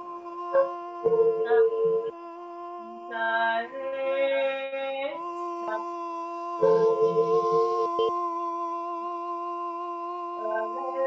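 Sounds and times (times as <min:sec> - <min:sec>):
sustained drone tone: 0:00.0 - 0:05.9, 0:06.6 - 0:08.2
howl-like singing: 0:00.0 - 0:11.0.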